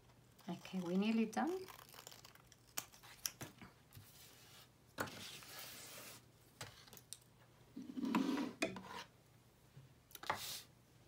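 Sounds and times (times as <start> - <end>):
paper sliding on wooden desk: 8.0 - 8.6.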